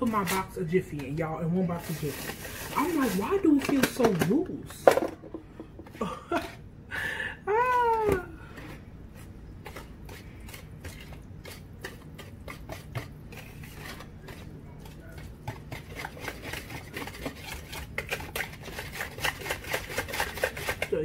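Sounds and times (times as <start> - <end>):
utensil beating batter in bowl: 8.8 - 21.0.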